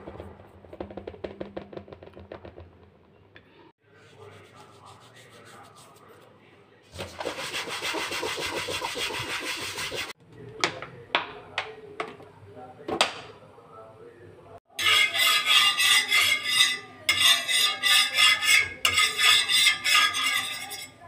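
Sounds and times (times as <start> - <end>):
dough rubbing in flour: 3.8 - 10.2, 14.8 - 21.0.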